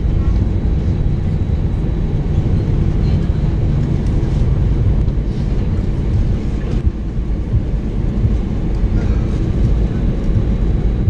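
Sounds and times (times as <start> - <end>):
aircraft cabin engine rumble: 0.0 - 11.0.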